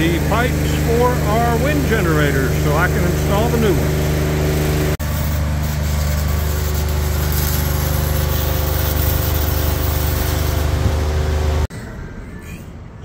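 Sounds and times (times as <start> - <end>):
welding machine hum: 0.0 - 11.7
welding arc crackling hiss: 2.1 - 11.7.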